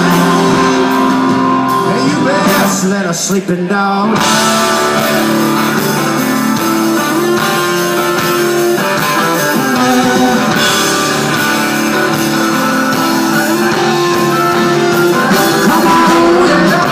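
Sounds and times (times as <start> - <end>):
drums: 0.0 - 16.9
electric guitar: 0.0 - 16.9
rock band playing: 0.0 - 16.9.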